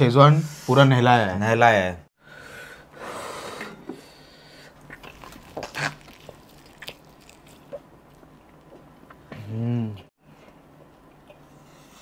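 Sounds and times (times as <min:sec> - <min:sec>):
person eating and chewing: 0:04.6 - 0:10.0.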